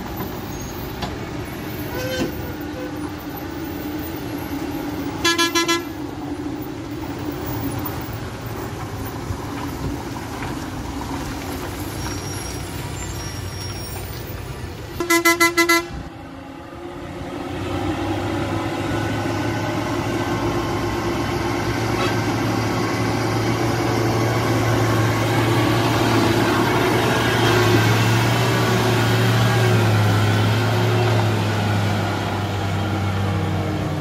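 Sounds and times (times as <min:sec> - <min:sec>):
short horn toots: 0:05.2 - 0:05.9.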